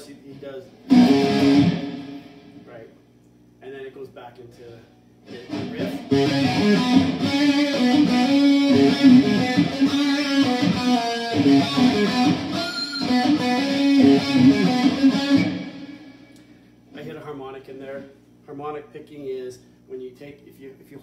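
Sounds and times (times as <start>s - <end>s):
electric guitar rock riff: 0.8s - 2.7s, 5.2s - 16.4s.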